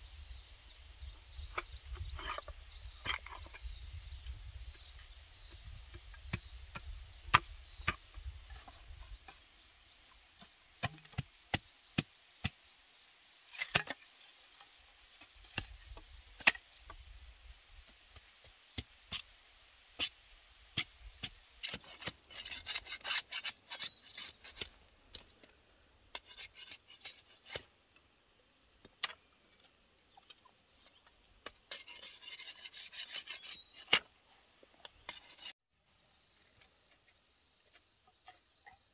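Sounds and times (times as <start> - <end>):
rasping scrapes of bamboo shaving: 1.6 - 3.8, 13.5 - 16.6, 20.0 - 25.4, 26.1 - 27.7, 31.4 - 34.1, 34.9 - 35.6.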